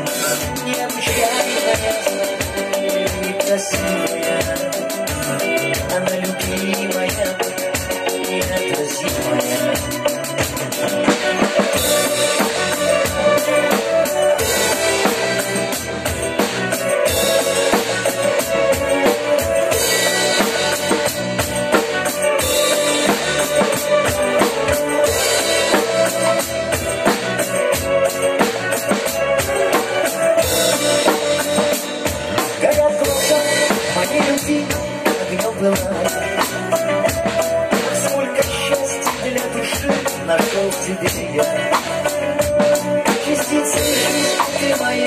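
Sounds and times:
backing track music: 0.0 - 45.0
drum kit pop beat: 0.0 - 45.0.

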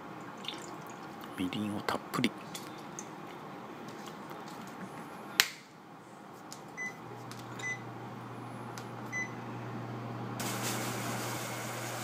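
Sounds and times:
low hum of electric hob: 2.4 - 12.0.

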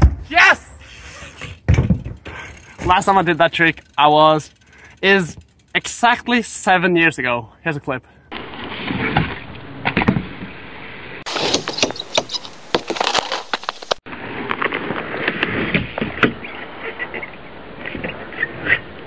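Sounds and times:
bike tyres rolling on ramp: 0.9 - 6.0
bike knocking on ramp: 1.6 - 3.0.

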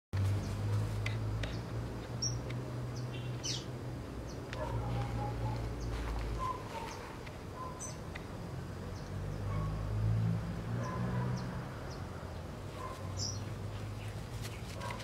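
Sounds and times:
birds chirping: 1.4 - 8.3, 10.8 - 15.0.

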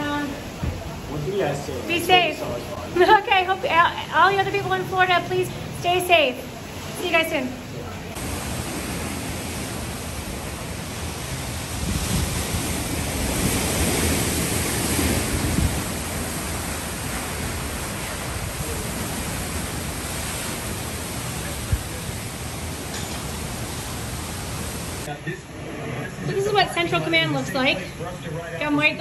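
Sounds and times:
strong wind: 0.0 - 27.7
heavy driving rain: 0.0 - 29.0
wind buffeting microphone: 8.1 - 25.1.

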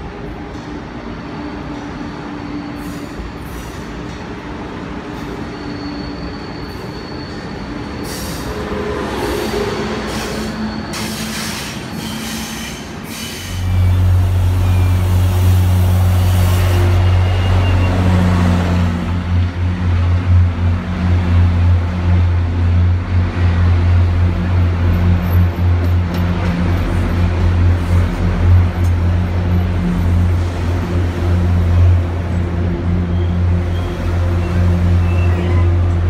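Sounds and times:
diesel locomotive engine drone: 0.0 - 36.0
train rail noise: 0.0 - 36.0.

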